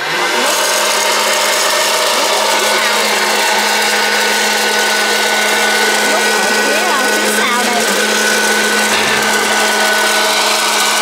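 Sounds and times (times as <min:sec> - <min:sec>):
fan motor hum: 0:00.0 - 0:11.0
popcorn popper blowing drone: 0:00.0 - 0:11.0.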